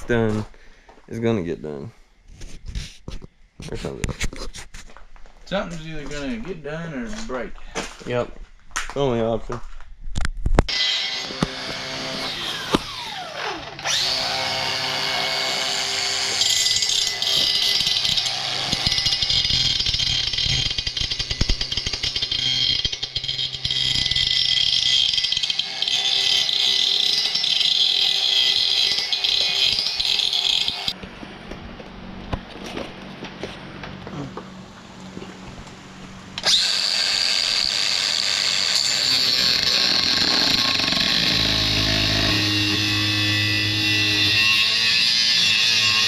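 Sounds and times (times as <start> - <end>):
angle grinder grinding metal: 10.7 - 31.0, 36.4 - 46.0
angle grinder winding down: 10.7 - 31.0, 36.4 - 46.0.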